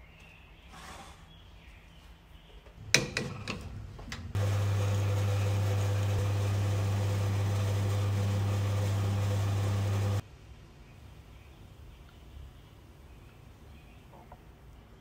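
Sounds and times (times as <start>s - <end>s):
espresso machine pump humming: 4.4s - 10.2s.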